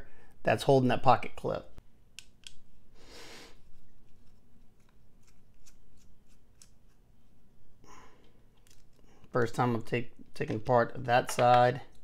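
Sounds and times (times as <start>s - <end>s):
small screwdriver clicking and scraping: 4.1s - 7.0s.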